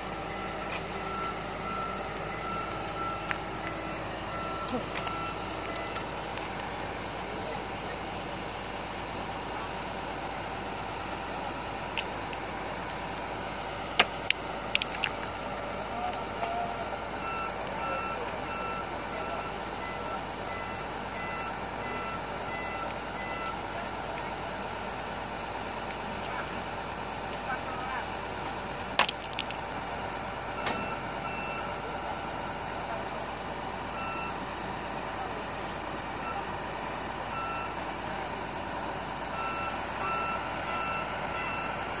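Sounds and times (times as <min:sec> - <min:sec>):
backup alarm beeping: 0:00.0 - 0:08.0, 0:15.7 - 0:24.5, 0:30.4 - 0:32.9, 0:33.9 - 0:34.4, 0:37.3 - 0:37.8, 0:39.3 - 0:42.0
heavy diesel machinery running: 0:00.0 - 0:42.0.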